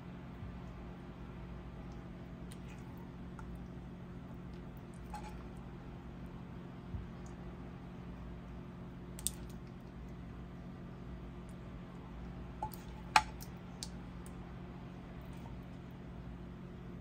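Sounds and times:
steady low hum: 0.0 - 17.0
ladle scooping gravy: 4.4 - 5.6.

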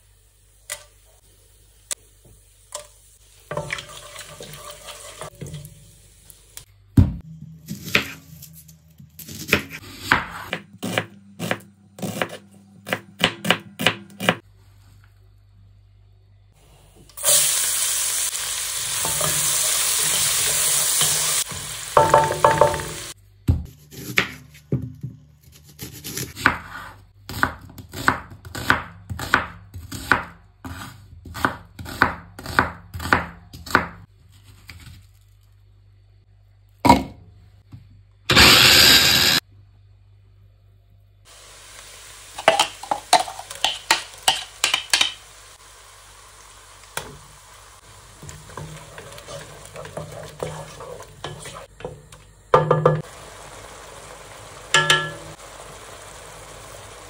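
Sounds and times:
onions sizzling in oil: 0.0 - 6.7, 17.2 - 23.2, 41.3 - 57.0
wooden spatula stirring: 48.2 - 52.2.

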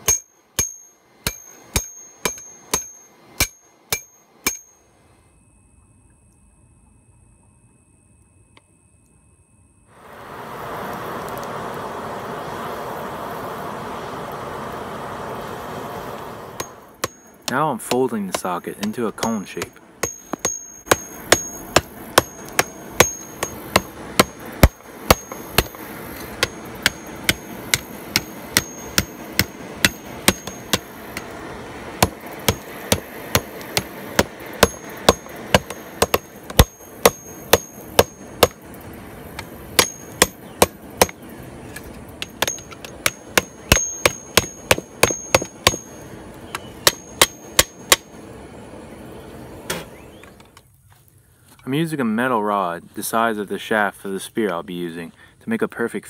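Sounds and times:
hammer striking hot steel on anvil: 0.0 - 4.8, 16.6 - 31.3, 32.0 - 38.6, 39.4 - 41.2, 42.2 - 48.1.

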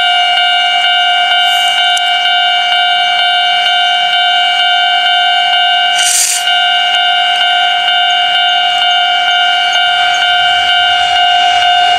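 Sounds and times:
level crossing warning bell: 0.0 - 11.9
brief hiss: 6.0 - 6.5.

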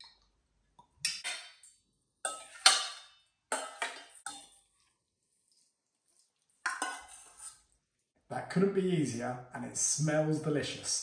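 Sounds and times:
metal spoon scraping metal bowl: 2.3 - 4.6, 6.7 - 7.6.

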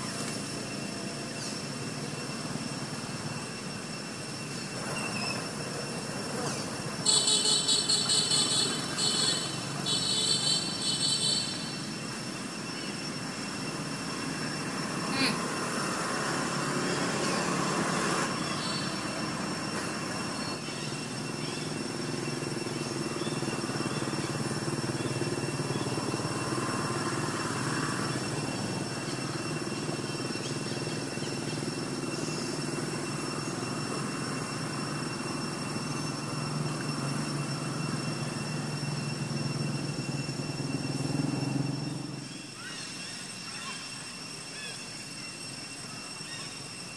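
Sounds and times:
high-pitched hum: 0.0 - 46.9
rapid high trilling calls: 7.0 - 15.6, 16.8 - 26.7, 27.6 - 36.7, 41.8 - 46.9.

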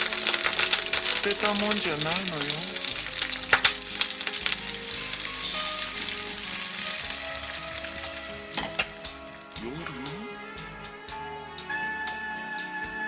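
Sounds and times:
food sizzling in a frying pan: 0.0 - 9.7.

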